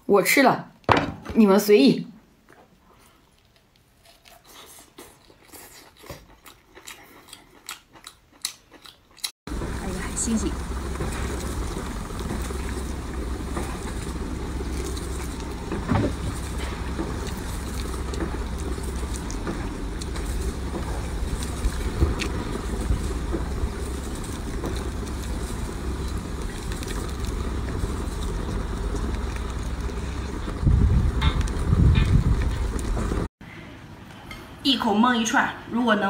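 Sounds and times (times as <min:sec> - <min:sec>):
low rumble: 0:09.5 - 0:33.3.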